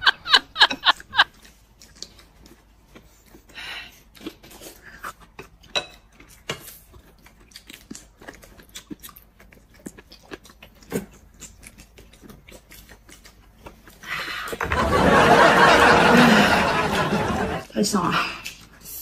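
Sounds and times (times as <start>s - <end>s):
food chewing: 0.9s - 14.6s.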